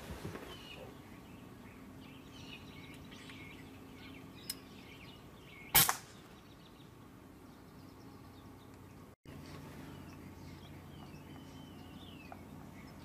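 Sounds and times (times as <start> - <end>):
air rifle shot: 5.7 - 6.2.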